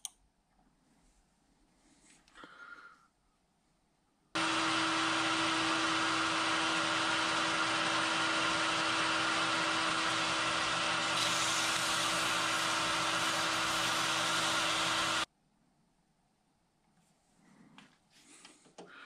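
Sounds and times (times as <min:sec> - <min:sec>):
metal lathe humming: 0:04.4 - 0:15.3.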